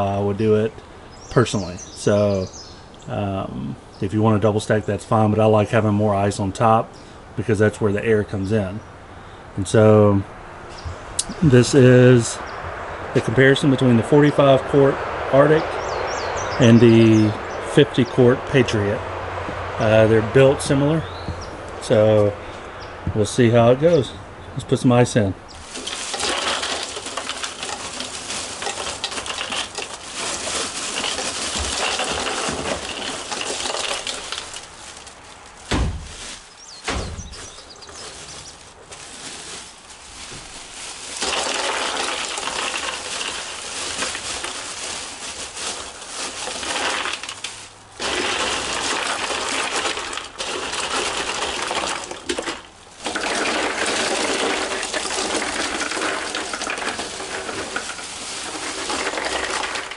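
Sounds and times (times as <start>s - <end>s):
ice cubes clattering into coolers: 25.6s - 59.9s
dull thumps: 35.6s - 40.6s.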